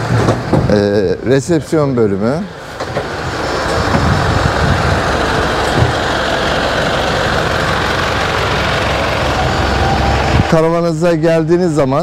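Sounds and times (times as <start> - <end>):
wind on microphone: 3.7 - 6.0.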